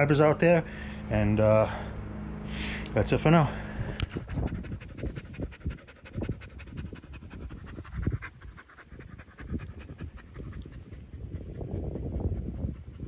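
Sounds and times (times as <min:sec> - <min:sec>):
dog panting: 0:03.8 - 0:13.0.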